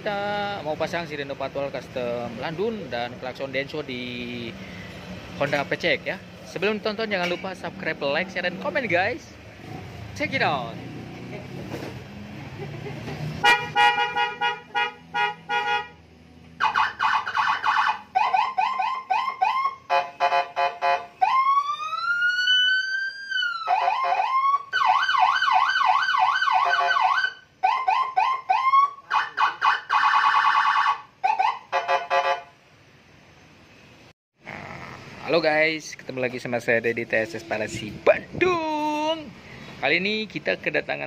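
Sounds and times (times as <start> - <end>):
electronic siren changing tones: 16.6 - 19.9, 21.2 - 31.7.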